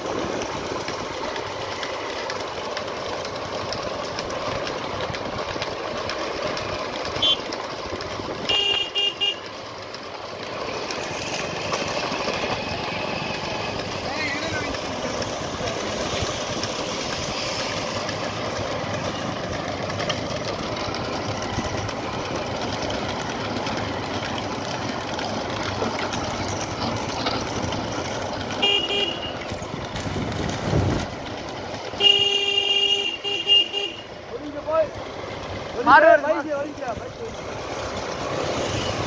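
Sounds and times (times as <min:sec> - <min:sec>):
road traffic noise: 0:00.0 - 0:39.0
vehicle horn honks: 0:07.2 - 0:07.5, 0:08.4 - 0:09.5, 0:28.6 - 0:29.4, 0:32.0 - 0:34.1.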